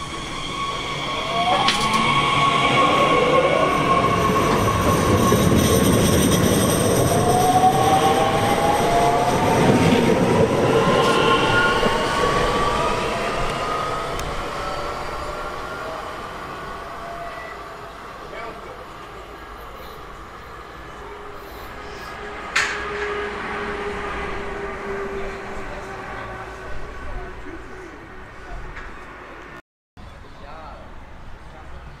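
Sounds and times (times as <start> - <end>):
traction motors whining: 0.0 - 23.2
wheels rumbling on rail: 0.0 - 29.6.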